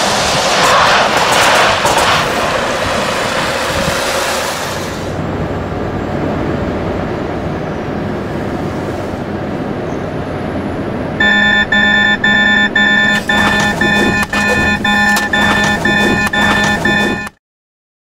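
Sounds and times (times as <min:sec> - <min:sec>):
truck cab and road noise: 0:01.2 - 0:17.4
pulsing warning beeps: 0:11.2 - 0:17.4
sharp clicks: 0:11.2 - 0:17.4.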